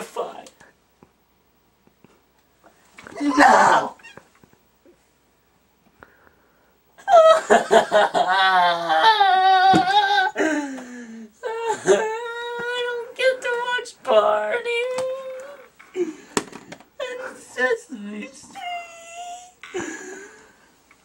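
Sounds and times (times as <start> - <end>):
boy wailing: 3.1 - 4.2, 8.2 - 10.4.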